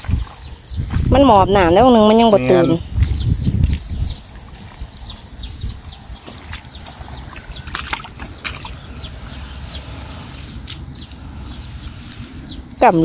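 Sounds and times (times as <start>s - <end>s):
muddy water sloshing: 0.0s - 9.5s
hands in wet straw and mud: 0.0s - 13.0s.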